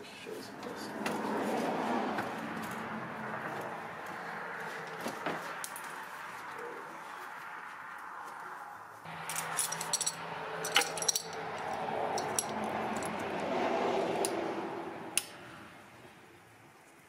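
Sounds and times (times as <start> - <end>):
metal hand tools clinking: 9.1 - 13.3
handling noise: 9.1 - 13.5.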